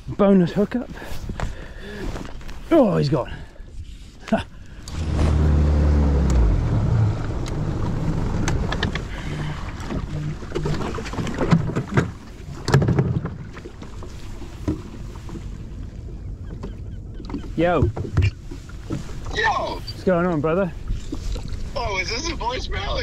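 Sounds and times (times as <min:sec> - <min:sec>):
wind: 0:00.0 - 0:23.0
water noise: 0:04.5 - 0:23.0
small boat motor humming: 0:04.6 - 0:19.8.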